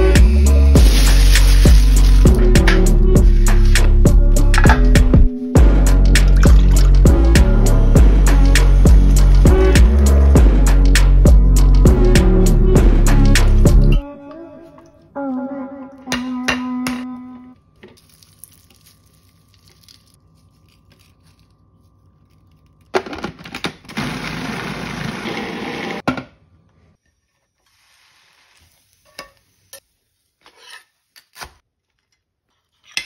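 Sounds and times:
food processor running: 23.9s - 26.0s.

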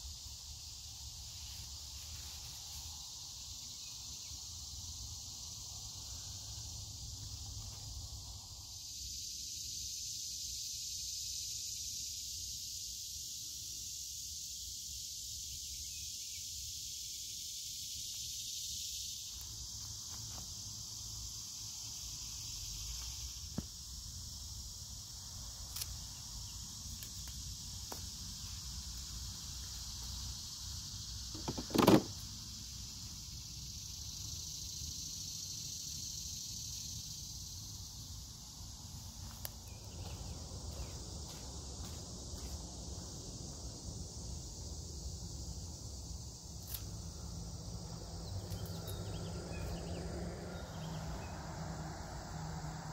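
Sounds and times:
crickets chirring: 0.0s - 52.9s
brief loud knock: 31.4s - 32.1s.

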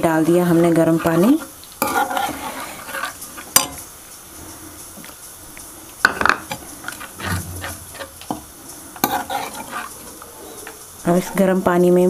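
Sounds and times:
spatula scraping a pan: 0.0s - 3.9s, 6.1s - 11.7s.

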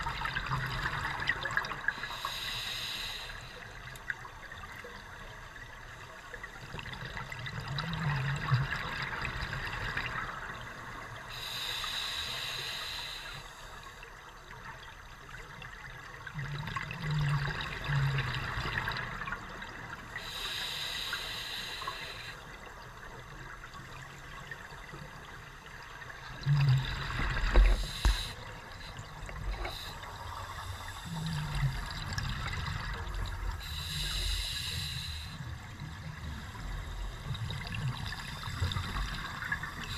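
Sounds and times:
regulator hissing inhalation: 2.0s - 3.6s, 11.4s - 13.6s, 20.2s - 22.4s, 27.6s - 28.4s, 29.6s - 31.5s, 33.6s - 35.4s
exhaled bubbles bubbling: 16.2s - 19.9s, 26.1s - 34.0s.

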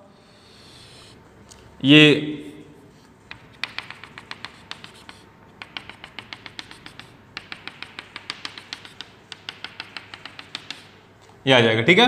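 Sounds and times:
chalk tapping on blackboard: 3.2s - 11.2s.

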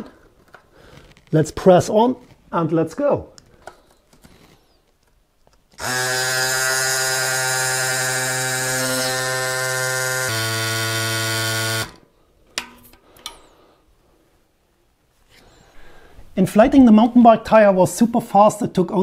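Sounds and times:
electric bike pump whining: 5.8s - 12.1s.

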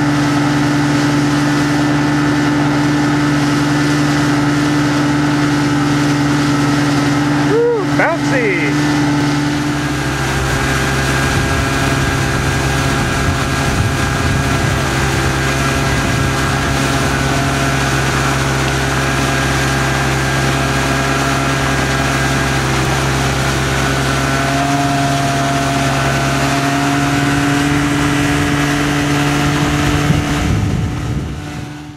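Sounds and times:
motorboat engine humming: 0.0s - 31.9s.

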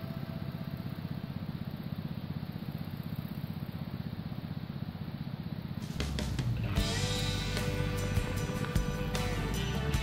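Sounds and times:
small engine running: 0.0s - 10.0s.

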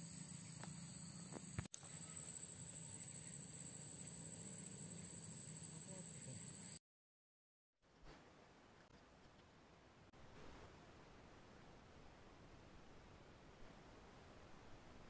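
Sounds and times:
insects chirring: 0.0s - 6.8s.

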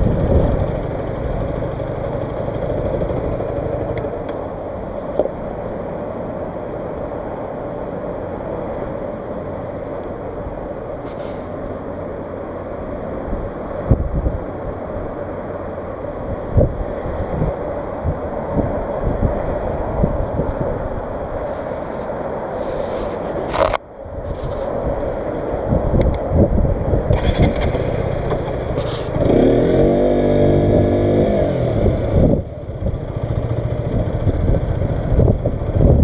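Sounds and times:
wind buffeting microphone: 0.0s - 4.3s, 13.1s - 36.0s
motorcycle engine idling: 0.0s - 4.7s, 31.8s - 36.0s.

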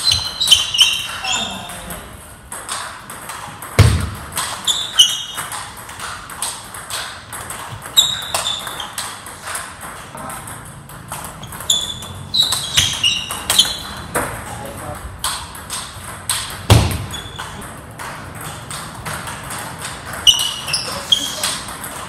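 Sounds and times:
sneakers squeaking on floor: 0.0s - 2.1s, 3.8s - 6.2s, 6.9s - 9.7s, 11.0s - 14.6s, 16.7s - 17.6s, 19.9s - 21.8s
ping pong ball clicking: 0.0s - 22.0s.

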